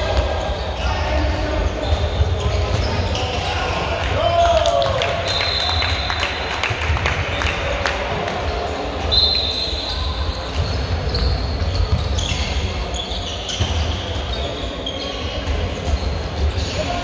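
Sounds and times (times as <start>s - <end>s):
shoes squeaking on wooden court: 0.0s - 3.8s, 9.1s - 17.0s.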